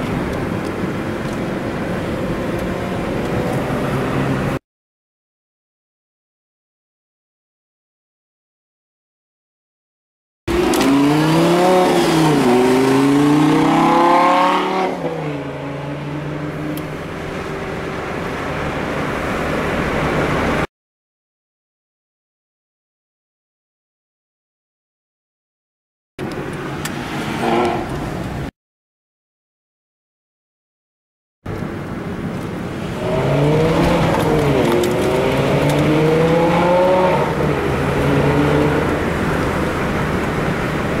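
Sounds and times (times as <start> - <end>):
sports car engine accelerating: 10.5 - 20.6, 31.6 - 41.0.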